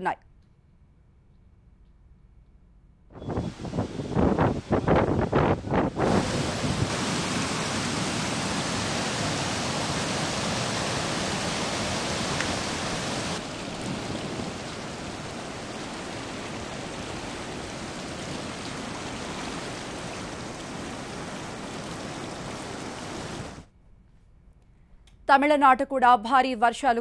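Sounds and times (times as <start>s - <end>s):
floodwater rushing: 3.2s - 23.6s.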